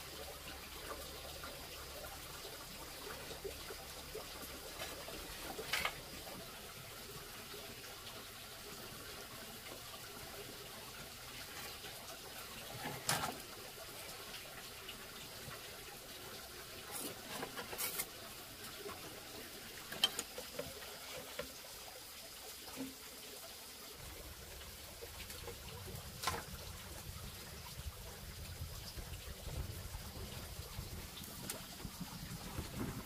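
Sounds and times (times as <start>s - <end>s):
water trickling: 0.0s - 33.0s.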